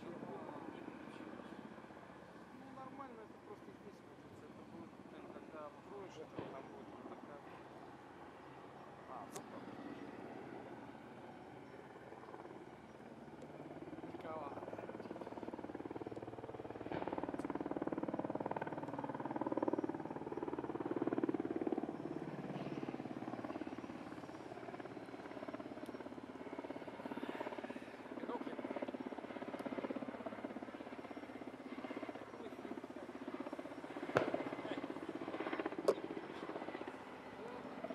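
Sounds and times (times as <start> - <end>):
helicopter rotor chop: 9.0 - 37.9.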